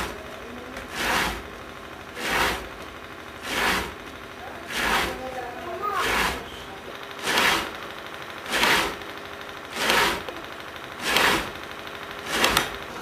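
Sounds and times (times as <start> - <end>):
tobacco cutter slicing leaves: 0.9 - 1.4, 2.2 - 2.7, 3.4 - 4.0, 4.7 - 5.2, 5.9 - 6.6, 7.2 - 7.8, 8.5 - 9.0, 9.7 - 10.4, 11.0 - 11.6, 12.2 - 12.8.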